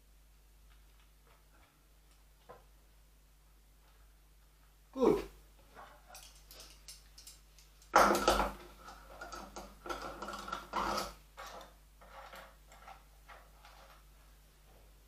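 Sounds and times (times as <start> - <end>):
tools clattering and rattling: 5.7 - 14.0.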